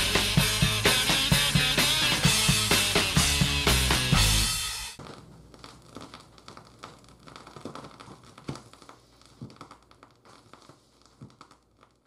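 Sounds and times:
vinyl crackles and pops: 4.9s - 12.0s.

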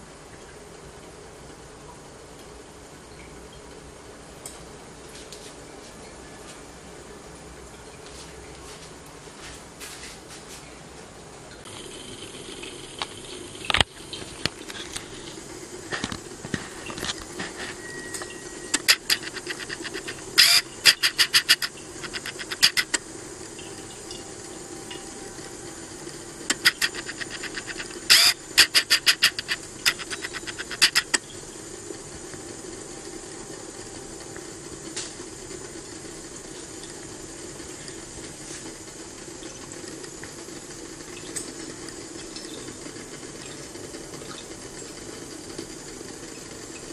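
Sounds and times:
steady hiss and hum: 0.0s - 46.9s
rapid sharp clicking: 11.6s - 24.2s, 24.9s - 38.3s.

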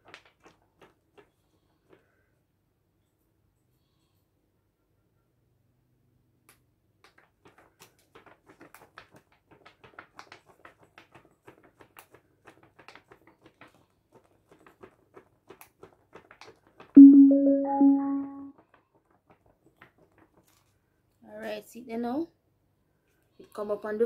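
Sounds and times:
speaker rising pairing chime: 17.0s - 18.4s.

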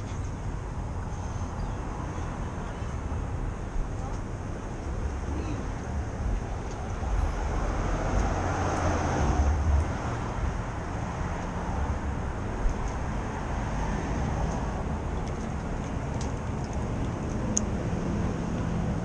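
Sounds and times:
street traffic rumble: 0.0s - 19.0s
vehicle passing: 4.8s - 19.0s.

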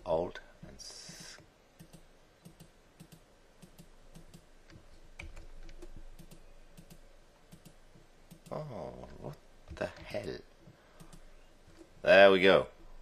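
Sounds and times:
mouse and keyboard clicking: 1.8s - 4.4s, 5.2s - 8.6s, 11.0s - 11.3s.

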